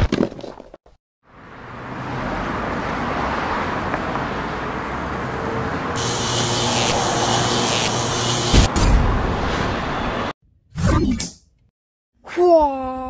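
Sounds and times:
harsh hissing: 6.0s - 8.7s.

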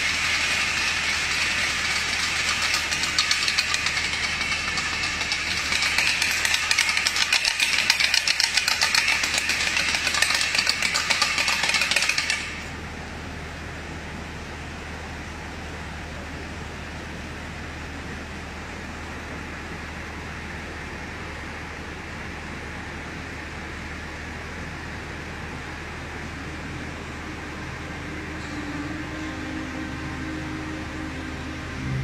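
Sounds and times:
wooden rattle clattering: 0.0s - 12.6s
low hum: 0.0s - 21.8s, 23.1s - 32.0s.

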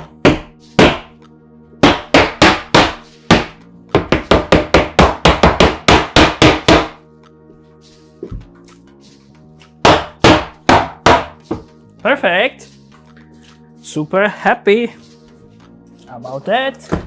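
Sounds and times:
rubber mallet striking wood: 0.0s - 1.2s, 1.8s - 7.0s, 9.8s - 11.7s.

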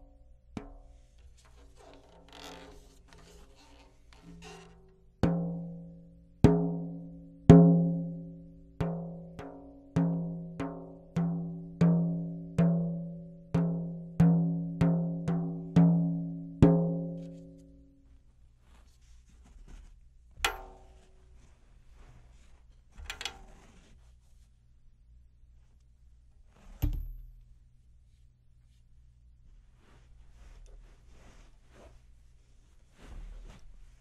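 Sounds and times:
tom drum taps ringing: 26.8s - 27.3s.

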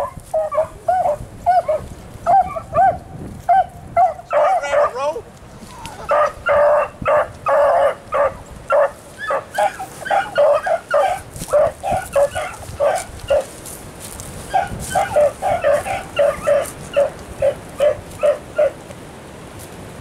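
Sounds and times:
dogs baying: 0.0s - 5.0s, 5.7s - 13.6s, 14.4s - 18.8s.

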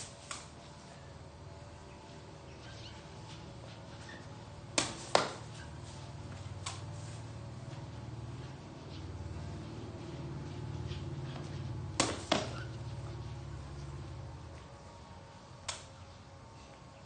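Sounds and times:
ball being kicked: 12.0s - 12.7s.

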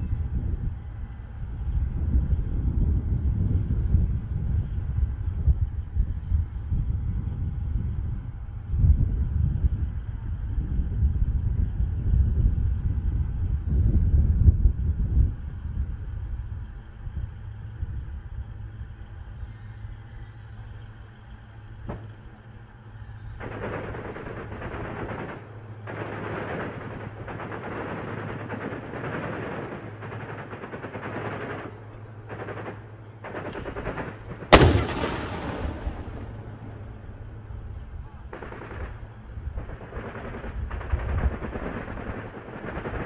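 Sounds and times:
rapid automatic gunfire: 23.4s - 37.4s, 38.3s - 43.0s
loud blast: 34.5s - 37.7s.

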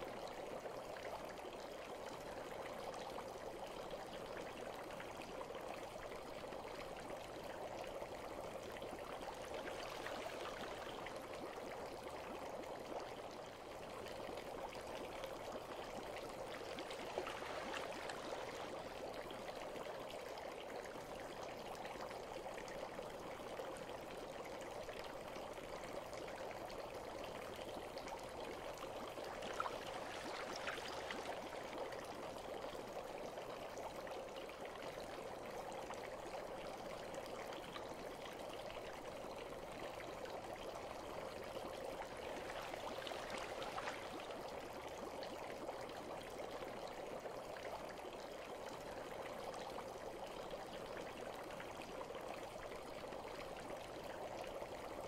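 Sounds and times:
bath water trickling: 15.4s - 19.8s, 28.5s - 32.6s, 41.4s - 45.0s.

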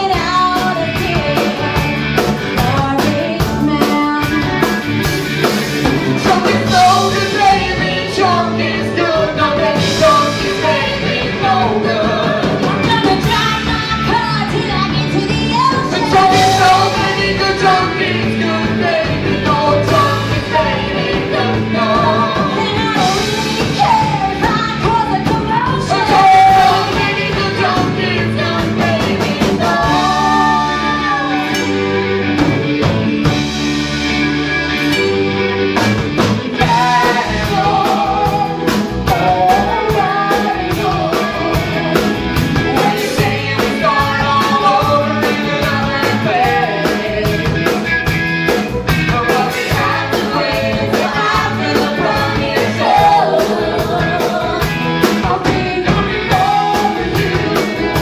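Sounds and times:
group of singers: 0.0s - 33.6s, 36.1s - 58.0s
live rock band playing: 0.0s - 58.0s.

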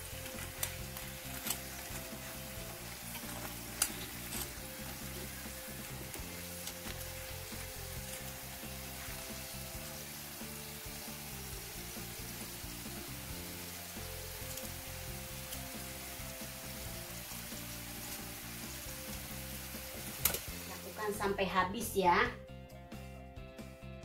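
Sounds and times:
hot oil sizzling: 0.0s - 22.0s
metal tongs clicking: 0.2s - 1.7s, 3.1s - 4.6s.

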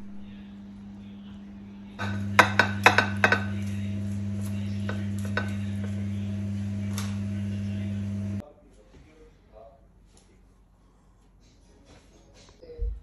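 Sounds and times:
steady low hum: 0.0s - 8.4s
utensil clinking on ceramic plate: 2.0s - 6.2s.

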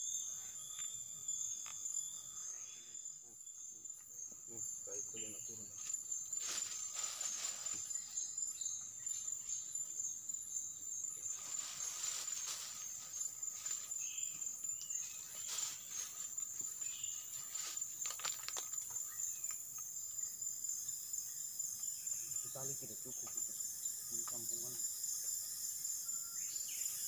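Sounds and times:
high-pitched insect drone: 0.0s - 27.0s
rustling: 5.7s - 8.0s, 11.2s - 14.0s, 14.9s - 18.9s.

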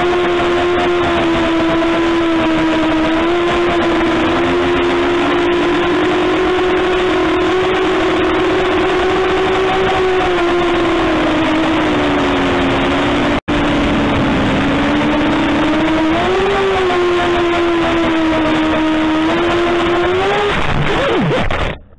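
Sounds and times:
drone motors whining: 0.0s - 21.9s
rushing air noise: 10.8s - 16.8s.

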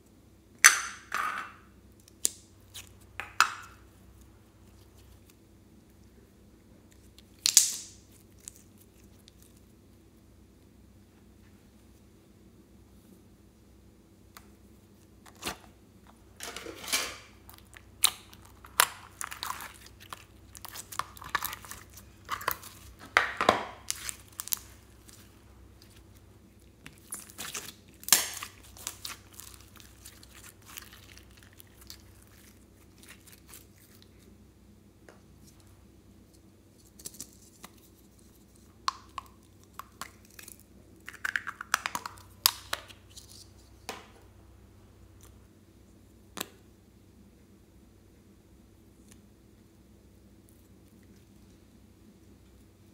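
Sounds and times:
wet slime squelching and popping: 17.4s - 34.2s, 38.8s - 43.0s.

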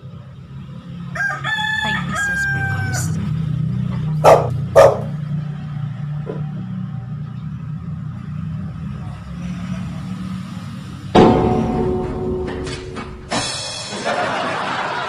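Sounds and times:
rooster crowing: 1.0s - 3.3s.

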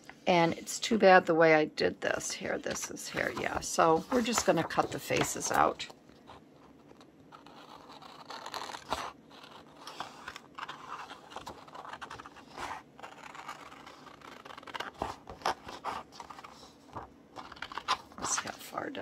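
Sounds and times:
scissors snipping paper: 7.4s - 16.6s.

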